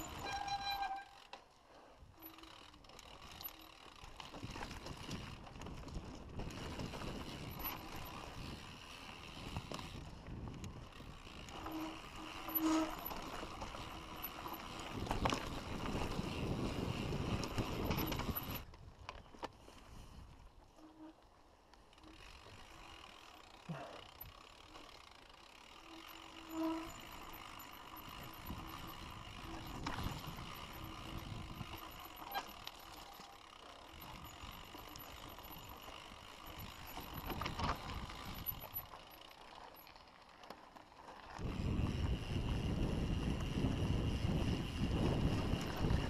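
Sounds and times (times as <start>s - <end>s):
bike rattling over bumps: 0.0s - 46.0s
bike tyres on dirt: 0.0s - 46.0s
wind noise on microphone: 4.2s - 19.1s, 26.6s - 32.6s, 36.4s - 38.8s, 41.4s - 46.0s.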